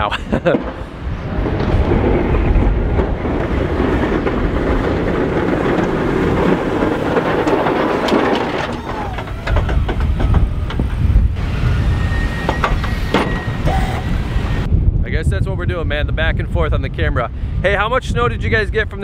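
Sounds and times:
truck engine rumble: 0:00.0 - 0:14.7
plow blade scraping pavement: 0:00.4 - 0:14.7.

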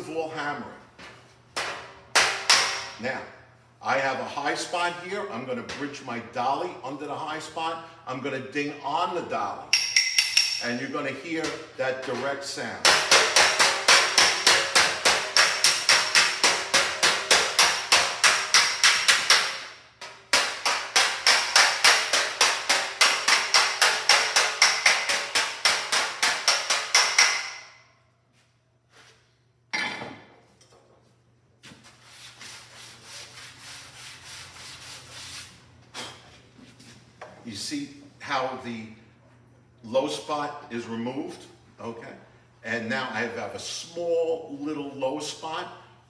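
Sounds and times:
hammer striking metal fender: 0:12.8 - 0:27.8
sanding board rubbing panel: 0:31.8 - 0:35.6.

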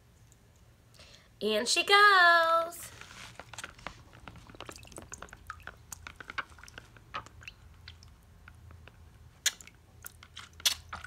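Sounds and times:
water splashing in plastic tub: 0:03.3 - 0:11.0.

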